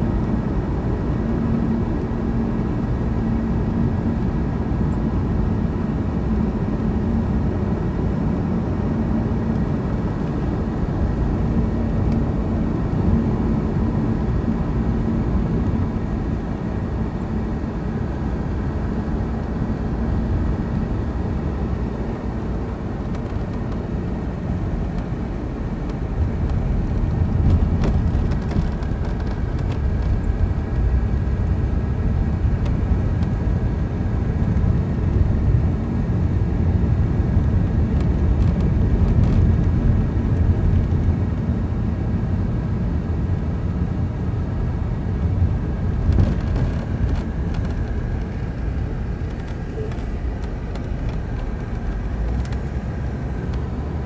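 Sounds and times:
steady hum: 0.0s - 54.0s
vehicle engine and road rumble: 0.0s - 54.0s.

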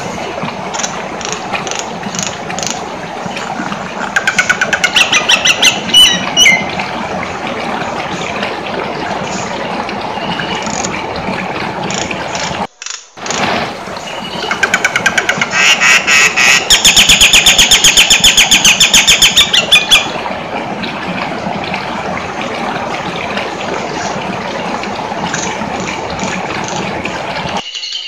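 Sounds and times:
bird singing repeated notes: 27.6s - 28.0s.

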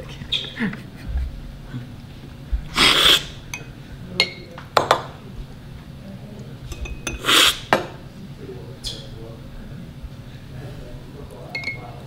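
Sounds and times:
coffee slurping off spoons: 2.7s - 3.4s, 7.2s - 7.7s
metal spoons clinking on glass: 11.5s - 11.8s.

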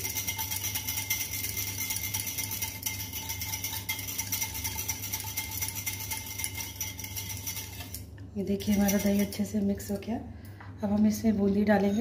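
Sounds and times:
whisk ticking against metal bowl: 0.0s - 9.4s.

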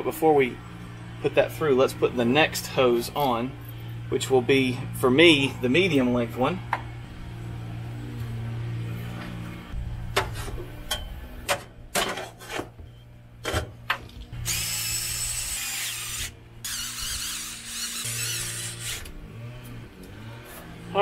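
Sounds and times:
power drill driving screws: 14.4s - 19.2s.

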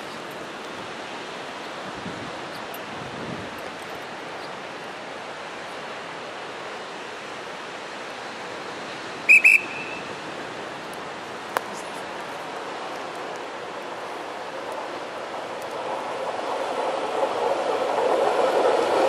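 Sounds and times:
ocean surf: 0.0s - 19.0s
wind: 0.0s - 19.0s
high whistle-like notes: 9.3s - 10.1s.

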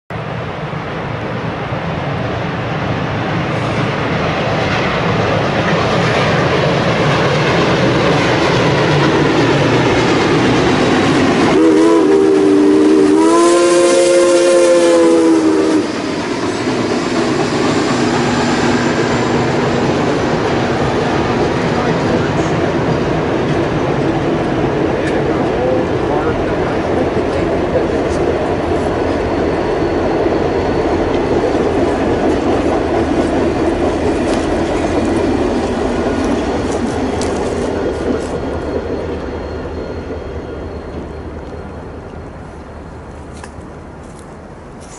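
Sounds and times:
passenger coaches rolling past: 0.1s - 44.9s
steam locomotive rumble: 0.1s - 44.9s.

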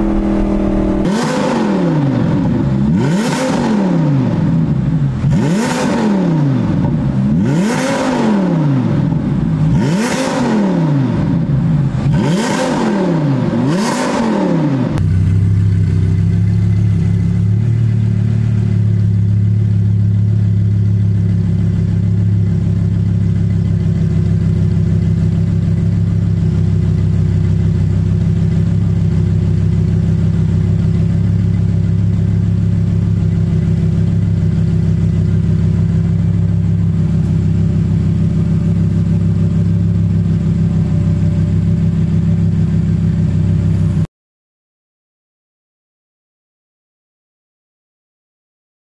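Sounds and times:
car engine idling: 0.0s - 3.2s, 15.0s - 44.1s
car engine revving: 0.0s - 17.3s.

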